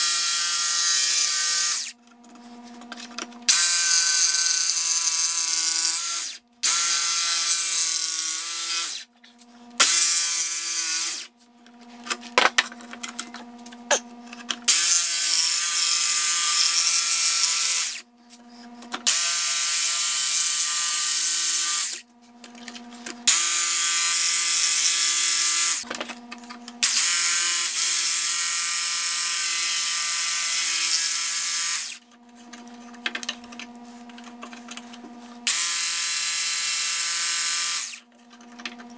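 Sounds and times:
jigsaw cutting wood: 0.0s - 2.0s, 3.5s - 9.1s, 9.8s - 11.3s, 14.7s - 18.0s, 19.0s - 22.0s, 23.2s - 25.9s, 26.8s - 32.0s, 35.4s - 38.0s.

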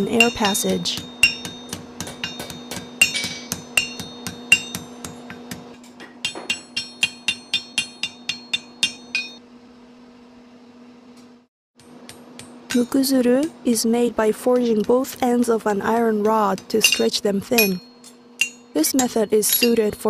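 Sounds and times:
hammer ringing on metal: 0.0s - 9.4s, 14.5s - 20.0s
steady low hum: 0.0s - 20.0s.

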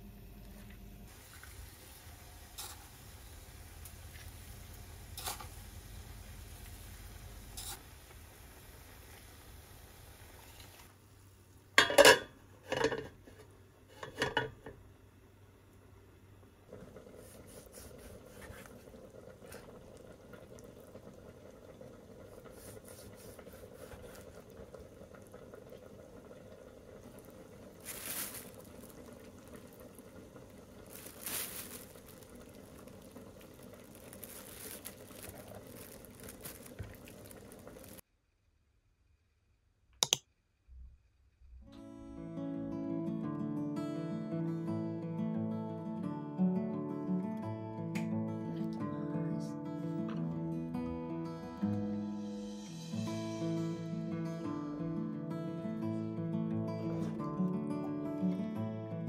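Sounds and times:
faint hum: 0.0s - 39.8s
plastic bag rustling: 27.1s - 38.0s.

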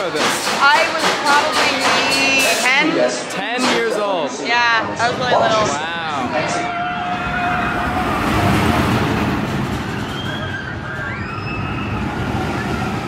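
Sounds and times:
high rising and falling tones: 4.8s - 13.0s
roller coaster rumbling roar: 4.9s - 13.0s.

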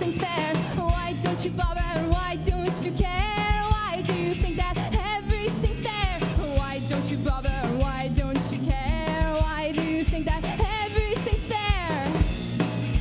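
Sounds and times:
woman singing: 0.0s - 12.3s
live rock band playing: 0.0s - 13.0s.

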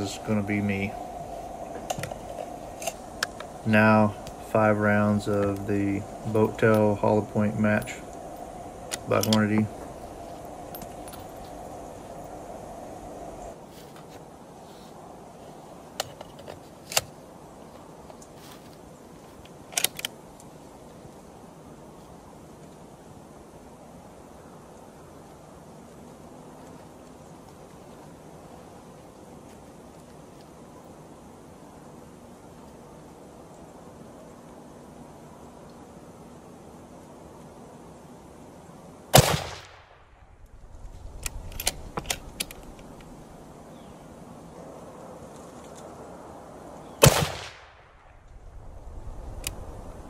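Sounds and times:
faint outdoor background: 0.0s - 50.0s
rifle handling clicks: 19.4s - 20.2s, 41.2s - 43.1s
rifle action metallic clicks: 19.7s - 20.2s
rifle shot with echo: 39.2s - 40.0s, 47.0s - 48.0s.

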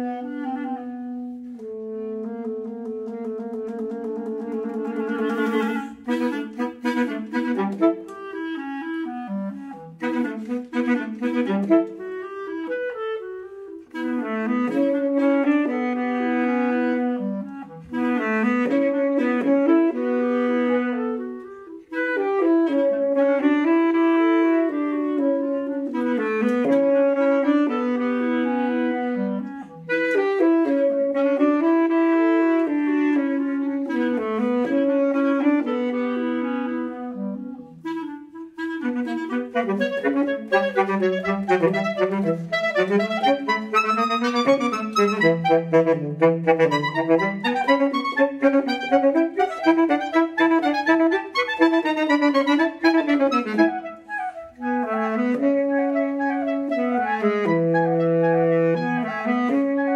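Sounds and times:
clarinet and saxophone duo: 0.0s - 59.9s.

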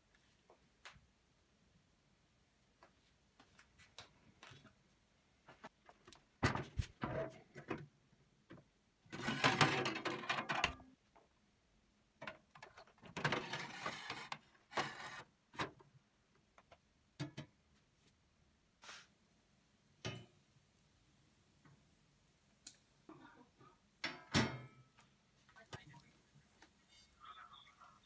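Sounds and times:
metal rattling scrapes: 9.1s - 10.7s.

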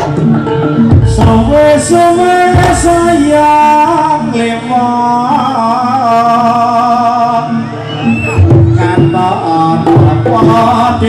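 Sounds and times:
drum stroke: 0.0s - 3.4s.

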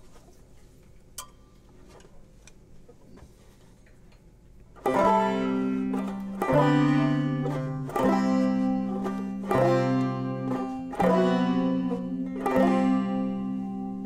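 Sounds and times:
plucked string instrumental music: 4.8s - 14.0s.

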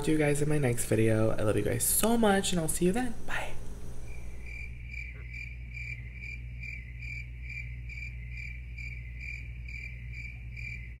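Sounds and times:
low hum: 0.0s - 11.0s
cricket chirping: 3.3s - 11.0s.

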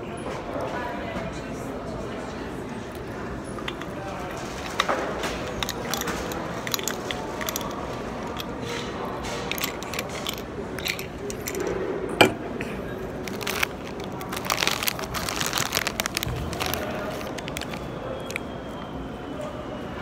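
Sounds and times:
crinkly snack bag rummaging: 3.7s - 8.5s, 9.4s - 11.6s, 13.1s - 18.5s
crisps crunching: 13.1s - 18.4s.

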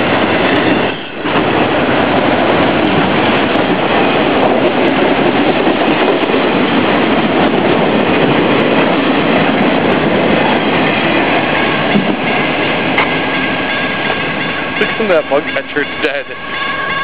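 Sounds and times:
train wheels clacking over rails: 0.0s - 17.0s
crossing bell high tones: 11.5s - 17.0s.

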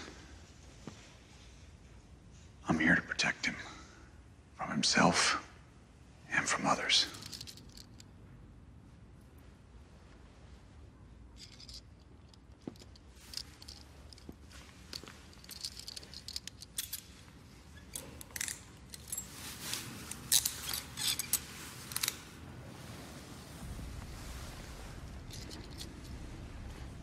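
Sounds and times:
handcuffs clicking and jangling: 7.0s - 8.1s, 11.4s - 22.4s, 25.0s - 27.0s.

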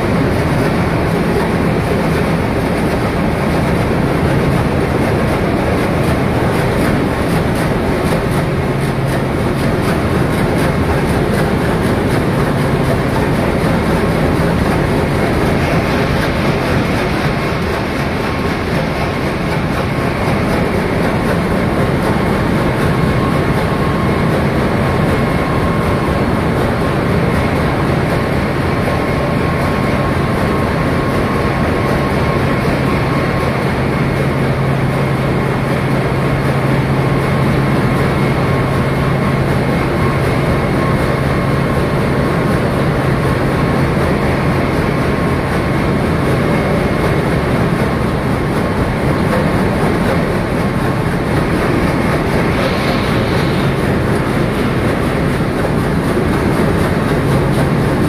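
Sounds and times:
diesel machinery roaring: 0.0s - 58.0s
high-pitched whine: 49.2s - 58.0s.

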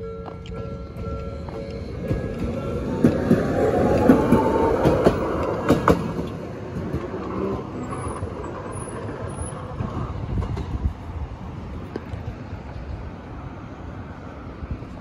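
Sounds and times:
streetcar wheels clacking over joints: 0.0s - 12.0s
streetcar whine: 0.0s - 15.0s.

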